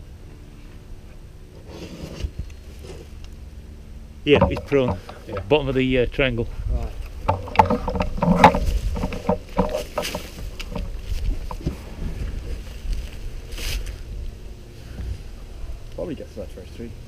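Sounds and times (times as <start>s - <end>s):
knocks and rustles: 4.3s - 5.8s, 7.0s - 14.1s
wind rumble on microphone: 4.3s - 15.9s.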